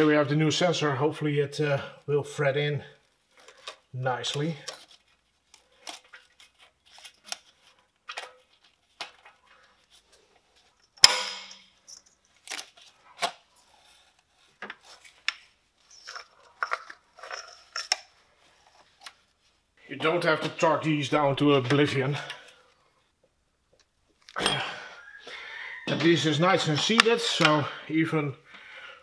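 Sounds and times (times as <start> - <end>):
sharp metal clack: 11.0 - 11.7.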